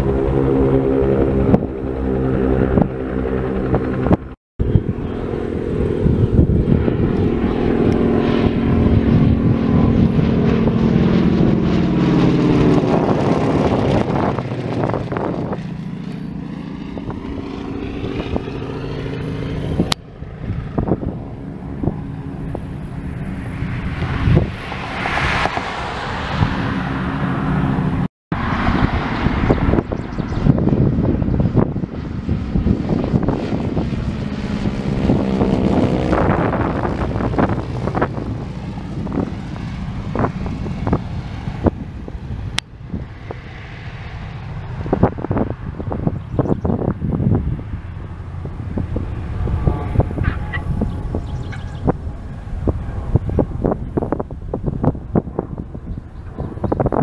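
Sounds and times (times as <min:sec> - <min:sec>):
radial aircraft engines droning: 0:00.0 - 0:57.0.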